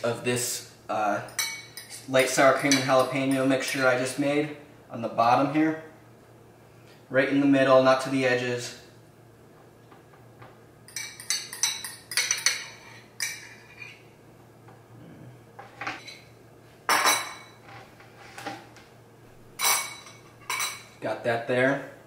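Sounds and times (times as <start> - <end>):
metal fork clinking against a bowl: 1.3 - 3.9, 10.9 - 14.0.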